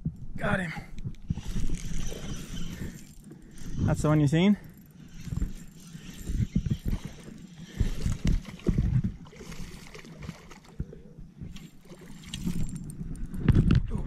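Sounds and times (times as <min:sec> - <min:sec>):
fish thrashing and splashing: 0:04.8 - 0:13.4
dull low thumps: 0:05.1 - 0:09.3.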